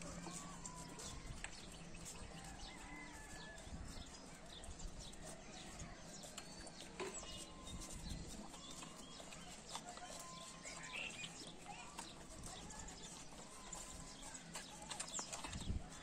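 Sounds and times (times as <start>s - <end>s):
puppies suckling clicks: 0.0s - 16.0s
puppies squeaking: 4.0s - 16.0s.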